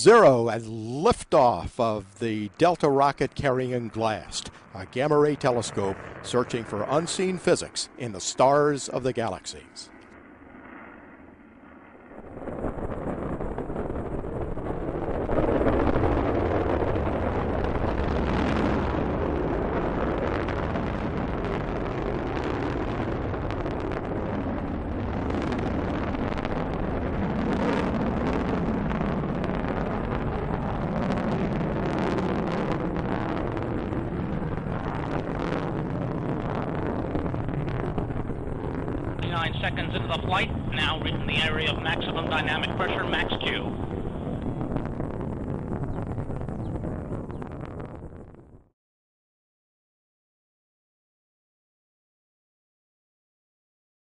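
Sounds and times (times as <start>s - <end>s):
rocket engine rumble: 0.0s - 48.7s
crackling pops: 21.5s - 48.4s.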